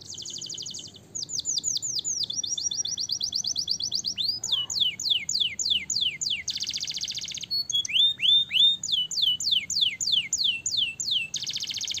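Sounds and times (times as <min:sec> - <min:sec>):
canary singing: 0:00.0 - 0:12.0.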